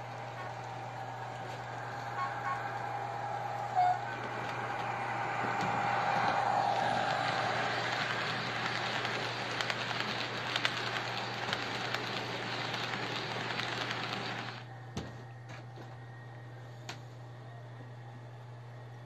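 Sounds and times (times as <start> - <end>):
model train rolling on track: 0.0 - 14.7.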